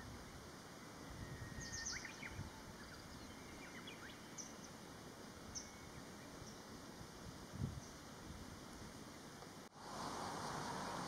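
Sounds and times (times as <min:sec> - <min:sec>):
small birds chirping: 0:01.2 - 0:04.8.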